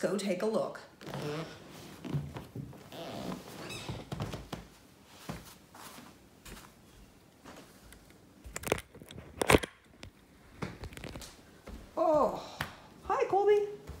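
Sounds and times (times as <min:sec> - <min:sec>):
camera handling rustles: 0:08.5 - 0:11.4.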